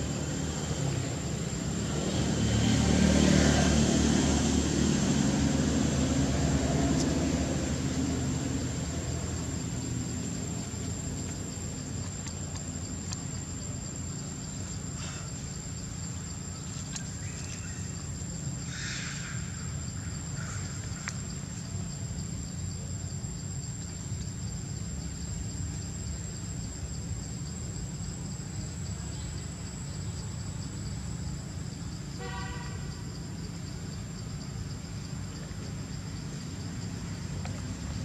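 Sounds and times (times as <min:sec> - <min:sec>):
constant high-pitched whine: 0:00.0 - 0:38.0.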